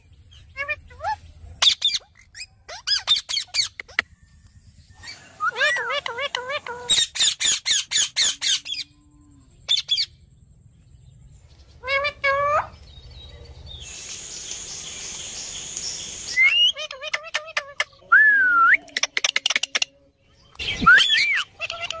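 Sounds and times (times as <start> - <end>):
parakeets squawking and chattering: 0.3 - 4.1, 5.0 - 8.9, 9.6 - 10.2, 11.7 - 12.9, 13.8 - 18.1, 20.6 - 22.0
steady hiss: 13.8 - 16.4.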